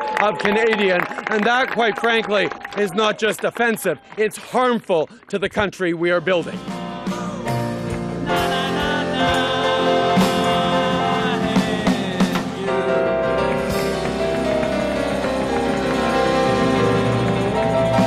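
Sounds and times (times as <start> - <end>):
man singing: 6.2 - 14.0
drum hits: 6.4 - 12.8, 13.4 - 18.0
electric organ chords: 6.4 - 18.0.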